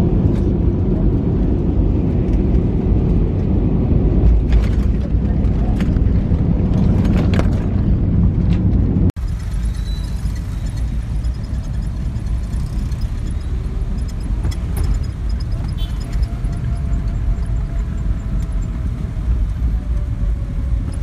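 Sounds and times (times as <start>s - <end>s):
jet airliner cabin rumble: 0.0s - 9.5s
car running in traffic: 0.0s - 21.0s.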